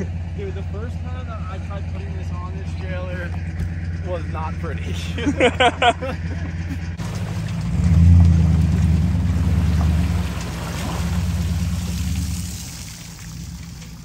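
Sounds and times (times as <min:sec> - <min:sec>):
engine humming and revving: 0:00.0 - 0:14.0.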